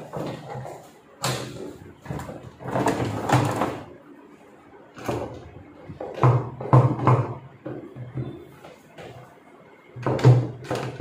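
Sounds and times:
plastic drum knocking against tub: 6.0 - 8.4.

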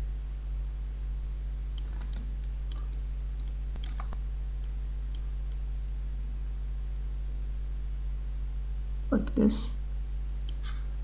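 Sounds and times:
steady low hum: 0.0 - 11.0
computer mouse clicking: 1.8 - 5.6, 10.4 - 10.7.

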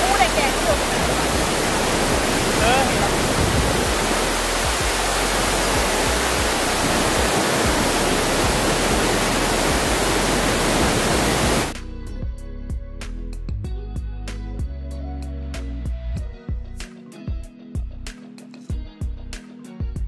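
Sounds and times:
rush of falling water: 0.0 - 11.7
music with picked notes: 11.7 - 20.0.

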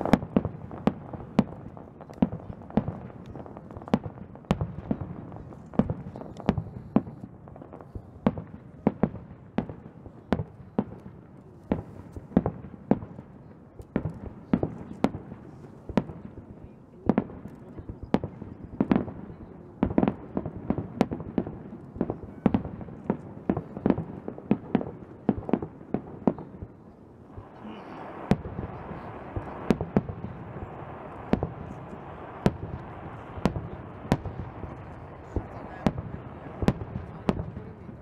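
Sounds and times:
fireworks bangs: 0.0 - 38.0.

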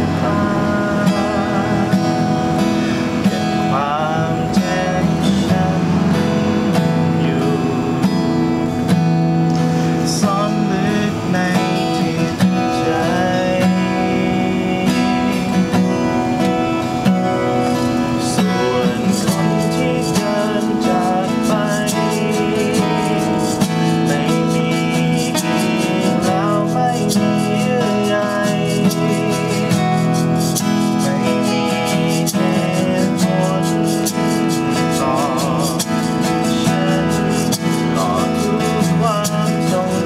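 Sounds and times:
acoustic guitars playing slow song: 0.0 - 40.0.

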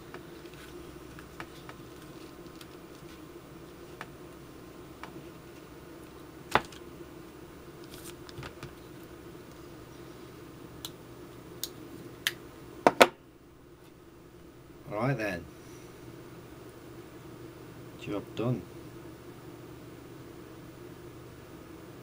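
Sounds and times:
low steady hum: 0.0 - 22.0
sharp knocks on tabletop: 12.9 - 13.2.

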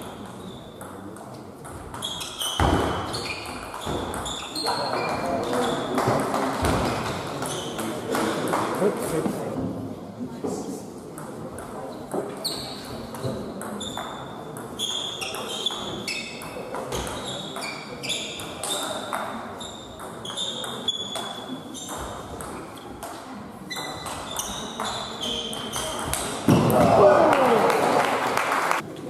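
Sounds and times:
shoes squeaking on floor: 0.0 - 0.9, 1.7 - 7.9, 12.3 - 26.6
murmur of spectators: 0.0 - 29.0.

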